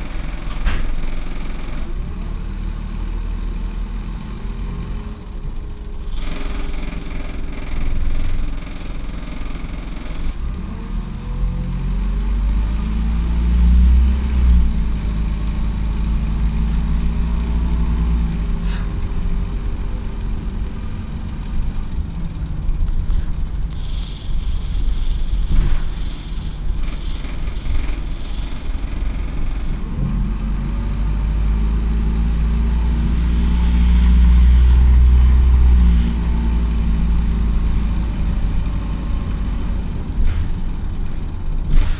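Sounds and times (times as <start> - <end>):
rattles: 0.0 - 2.1, 6.1 - 10.4, 22.3 - 30.4
bus engine accelerating: 0.0 - 41.9.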